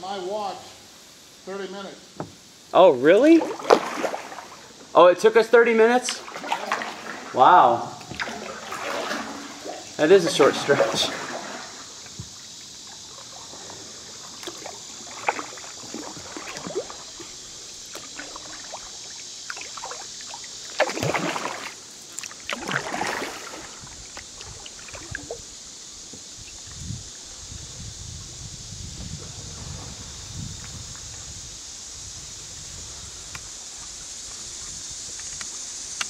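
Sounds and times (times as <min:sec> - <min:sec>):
steady high hiss: 0:00.0 - 0:36.0
paddle splashing in water: 0:03.1 - 0:04.8, 0:06.0 - 0:26.8
water dripping: 0:06.0 - 0:25.5.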